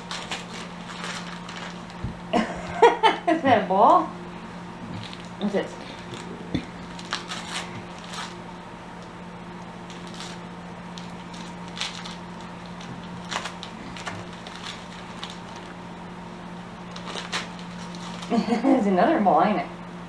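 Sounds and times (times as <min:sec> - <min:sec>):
wrapping paper crinkling: 0:00.0 - 0:02.3, 0:04.9 - 0:16.0, 0:16.8 - 0:18.7
steady low hum: 0:00.0 - 0:20.0.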